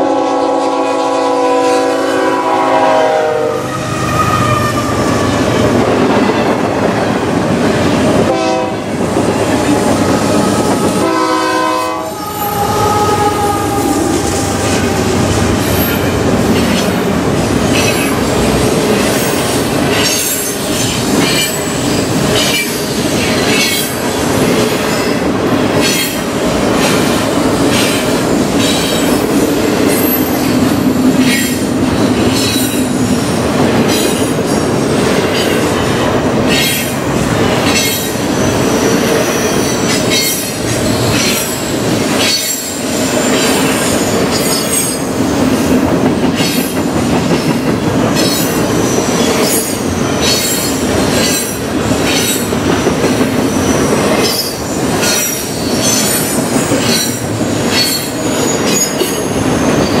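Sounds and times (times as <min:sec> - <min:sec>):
wheels rumbling on rail: 0:00.0 - 1:00.0
wheels clacking over rail joints: 0:15.4 - 1:00.0.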